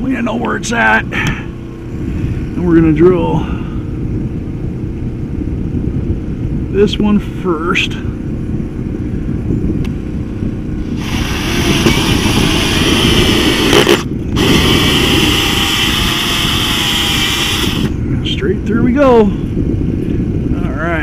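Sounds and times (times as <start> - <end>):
low rumble: 0.0 - 21.0
drill with hole saw cutting: 10.8 - 18.0.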